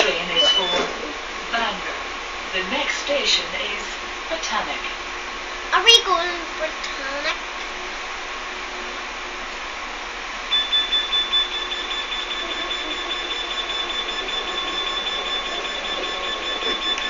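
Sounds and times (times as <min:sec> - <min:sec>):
high-pitched electronic alarm tone: 0:10.5 - 0:17.0
train carriage running noise: 0:10.5 - 0:17.0.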